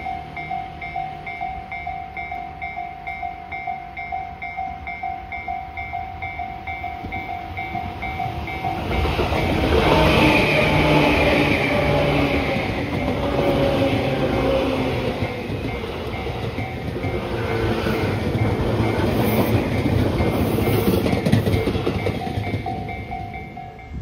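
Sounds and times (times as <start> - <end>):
electric train passing: 0.0 - 24.0.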